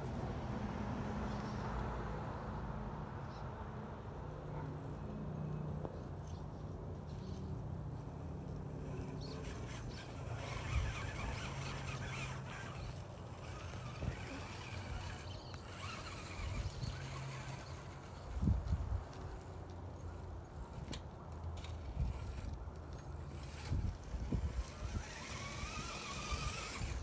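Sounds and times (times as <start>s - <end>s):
toy car motor whirring: 7.0s - 18.7s, 20.6s - 27.0s.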